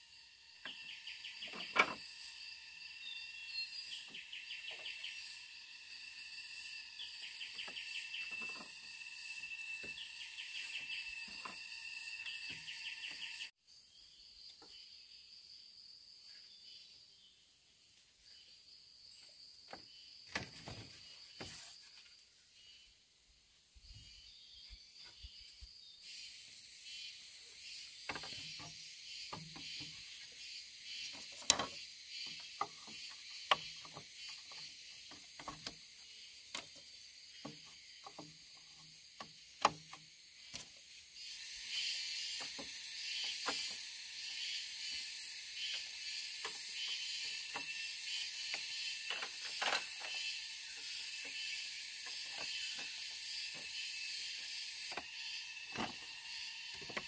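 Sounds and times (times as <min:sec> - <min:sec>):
forest insects droning: 0:00.0 - 0:57.0
bamboo poles knocking: 0:28.0 - 0:30.0, 0:31.1 - 0:35.8, 0:37.4 - 0:40.7.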